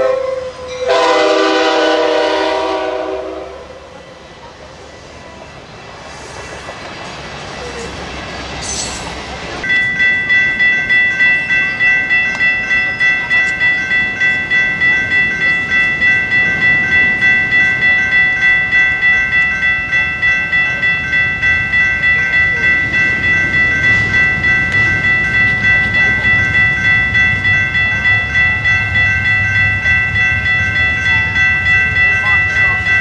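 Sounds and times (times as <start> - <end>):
electronic crossing bell ringing: 9.6 - 33.0.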